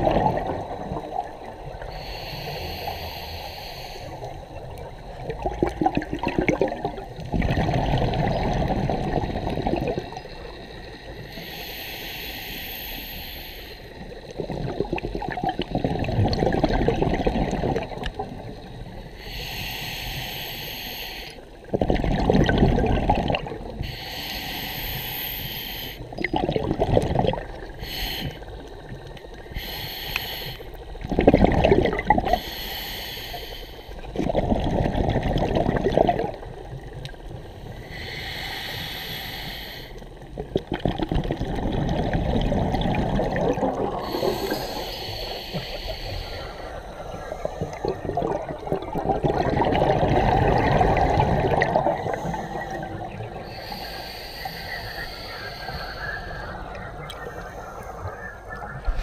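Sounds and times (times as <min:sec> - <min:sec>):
gurgling exhaled bubbles: 0:00.0 - 0:02.0, 0:04.2 - 0:10.7, 0:14.2 - 0:18.7, 0:21.7 - 0:23.8, 0:26.1 - 0:27.9, 0:31.0 - 0:32.4, 0:34.0 - 0:37.4, 0:40.2 - 0:57.4
regulator inhalation hiss: 0:00.6 - 0:05.2, 0:10.3 - 0:14.3, 0:18.5 - 0:21.6, 0:23.6 - 0:26.2, 0:27.6 - 0:31.0, 0:32.3 - 0:34.1, 0:36.4 - 0:40.2, 0:44.0 - 0:48.1, 0:52.0 - 0:58.1.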